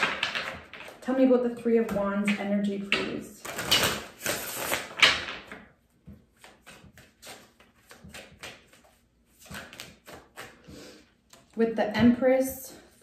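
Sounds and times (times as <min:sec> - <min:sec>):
cards being shuffled: 0:03.4 - 0:05.3, 0:06.1 - 0:11.6
cards flicking and tapping: 0:03.4 - 0:11.6.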